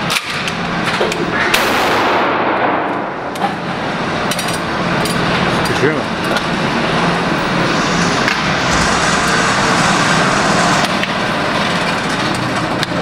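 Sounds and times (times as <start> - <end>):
ventilation rushing noise: 0.0 - 13.0.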